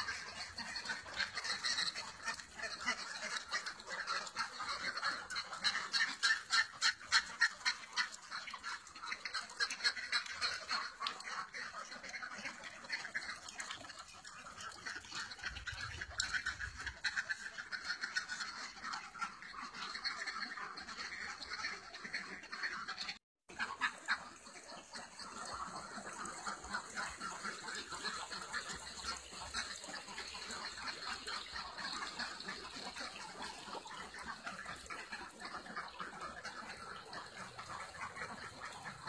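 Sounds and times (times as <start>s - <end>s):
ducks quacking: 0.0s - 39.0s.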